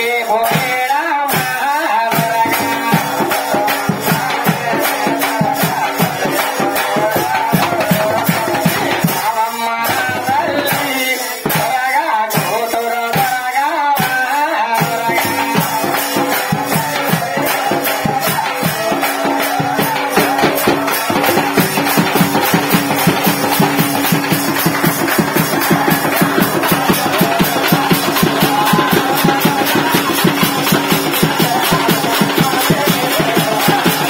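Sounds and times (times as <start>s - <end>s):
large drums beating fast: 2.1s - 13.4s, 14.8s - 34.0s.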